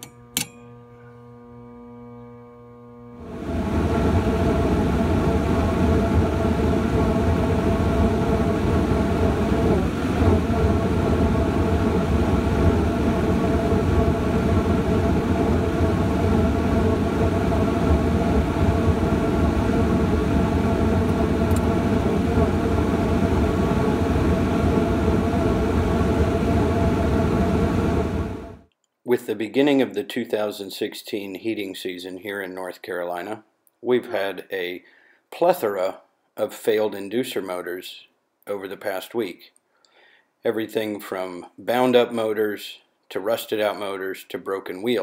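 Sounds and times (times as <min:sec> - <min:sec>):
blower humming: 0:00.0 - 0:28.7
gas flames roaring: 0:02.9 - 0:28.6.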